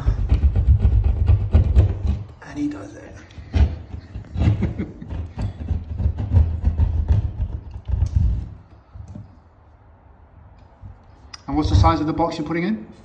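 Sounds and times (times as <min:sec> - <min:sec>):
hand saw cutting plasterboard: 0:00.0 - 0:02.3, 0:03.5 - 0:08.6.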